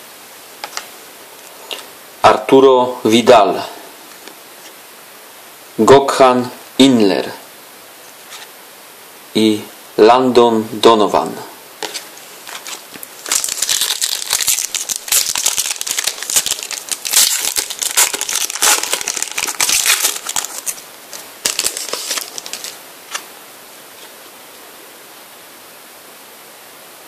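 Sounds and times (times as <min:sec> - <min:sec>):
foil pack crinkling: 0:11.8 - 0:23.3.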